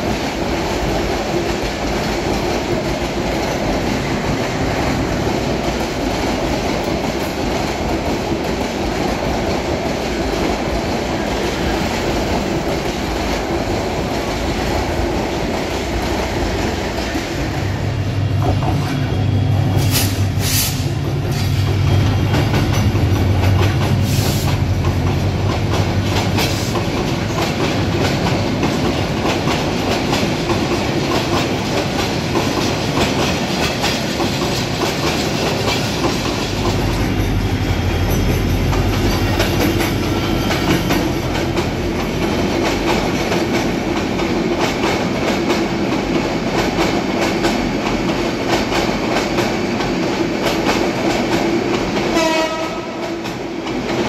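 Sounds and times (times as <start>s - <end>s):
train wheels clacking on rails: 0.0s - 54.0s
diesel locomotive rumble: 13.8s - 44.2s.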